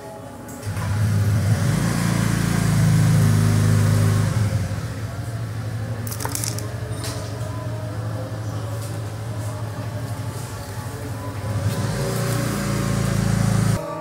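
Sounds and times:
vehicle engine running: 0.6s - 13.8s.

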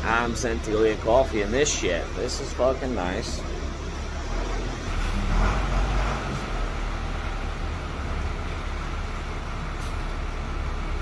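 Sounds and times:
engine rumble: 0.0s - 11.0s
tyres hissing on wet pavement: 4.4s - 11.0s.

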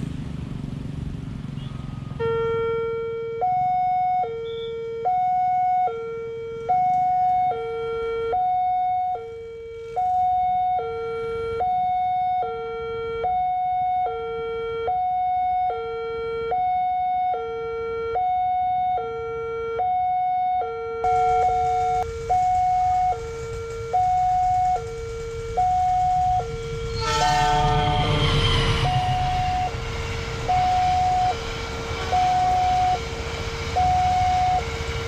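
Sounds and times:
level crossing two-tone alarm: 2.3s - 27.0s, 30.5s - 31.5s, 32.1s - 33.1s, 33.7s - 34.8s.

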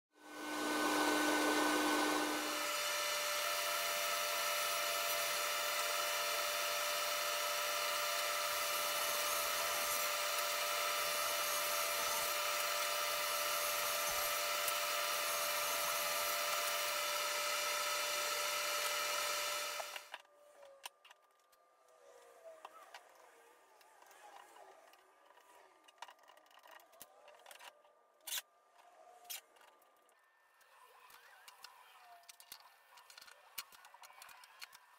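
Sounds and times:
table saw whining: 0.2s - 20.2s.

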